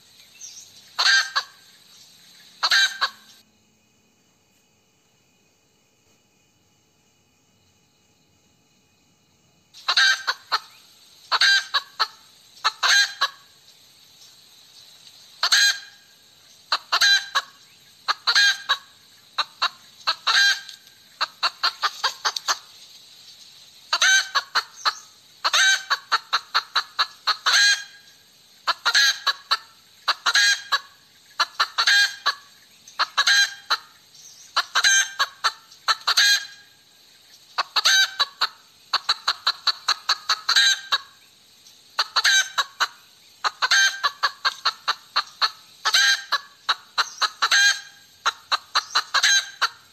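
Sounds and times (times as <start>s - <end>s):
hen cackling: 0.9s - 1.8s, 2.6s - 3.4s, 9.8s - 13.6s, 15.4s - 22.7s, 23.9s - 36.8s, 37.5s - 41.2s, 41.9s - 49.9s.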